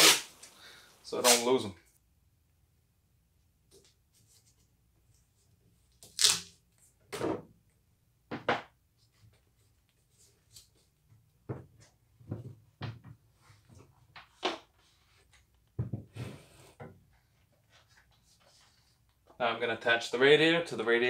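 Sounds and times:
tape ripping off a roll: 0:00.0 - 0:00.6, 0:01.2 - 0:01.5, 0:06.0 - 0:06.6.

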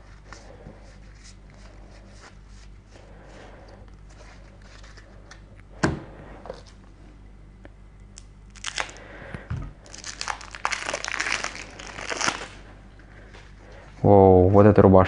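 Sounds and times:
plastic wrapping crinkling and tearing: 0:08.2 - 0:09.1, 0:09.8 - 0:12.7.

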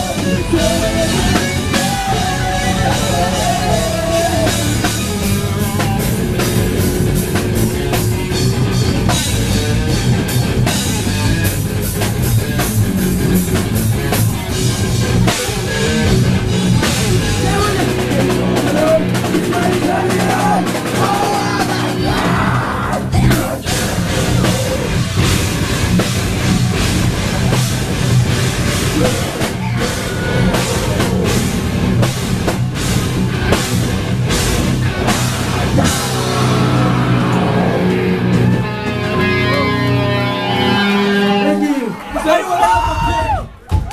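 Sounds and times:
rock band playing live: 0:00.0 - 0:43.9
drum kit hit hard: 0:12.2 - 0:39.0.

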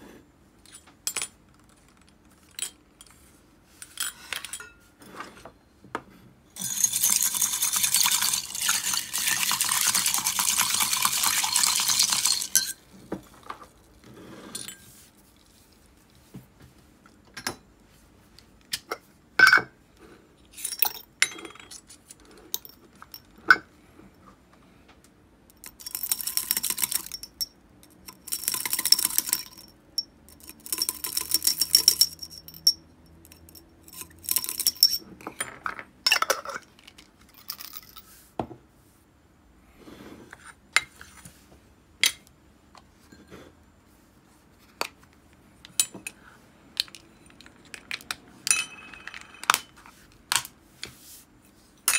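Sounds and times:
glass jar rattling when shaken: 0:06.6 - 0:12.9, 0:25.6 - 0:35.0.

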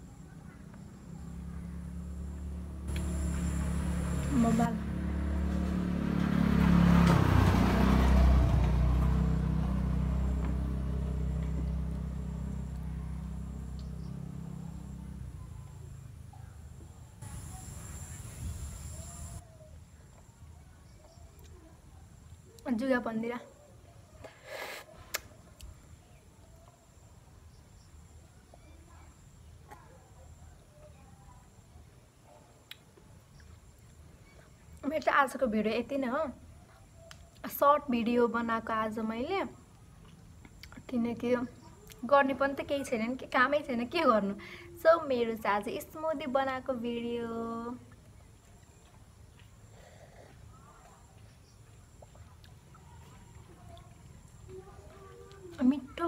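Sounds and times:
passing vehicle engine: 0:00.6 - 0:16.3
low hum: 0:01.1 - 0:06.0.

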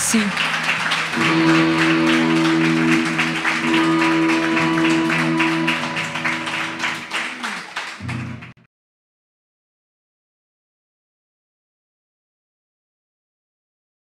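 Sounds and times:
electric guitar chords: 0:00.4 - 0:07.4, 0:08.0 - 0:08.5
drum kit playing: 0:00.4 - 0:08.6.

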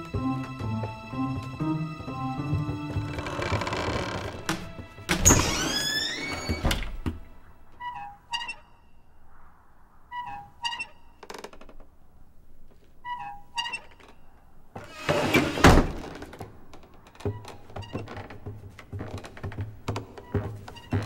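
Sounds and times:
soft tiptoe steps: 0:00.0 - 0:08.8, 0:16.0 - 0:21.0
quiet music: 0:00.0 - 0:09.0.

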